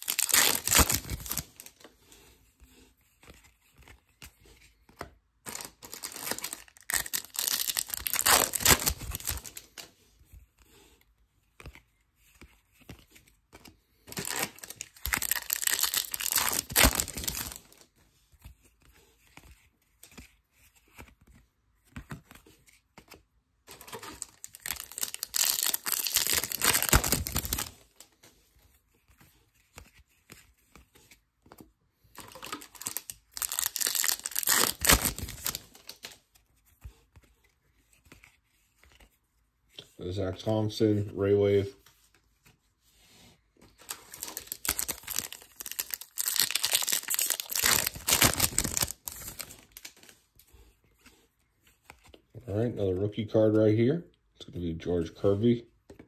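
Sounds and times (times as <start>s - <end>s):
wrappers tearing and crinkling: 0.0s - 1.8s, 5.5s - 9.9s, 14.1s - 17.8s, 23.7s - 27.9s, 32.2s - 36.2s, 43.8s - 50.1s.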